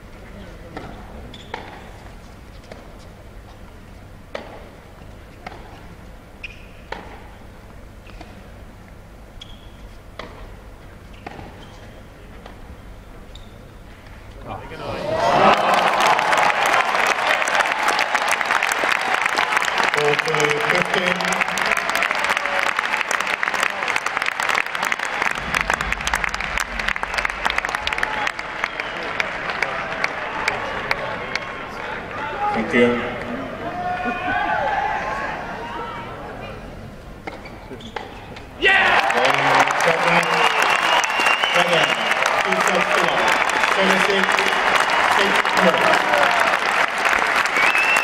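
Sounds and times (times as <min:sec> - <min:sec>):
short high shoe squeaks: 0:01.3 - 0:01.9, 0:06.4 - 0:06.9, 0:09.4 - 0:10.0, 0:11.1 - 0:12.1, 0:13.3 - 0:13.8
crowd applauding: 0:15.0 - 0:32.6, 0:38.7 - 0:48.0
low rumble: 0:25.2 - 0:28.7.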